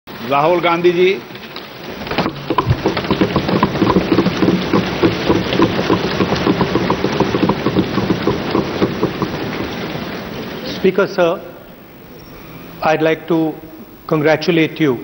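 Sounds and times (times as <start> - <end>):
people thumping desks: 2.1 - 9.9.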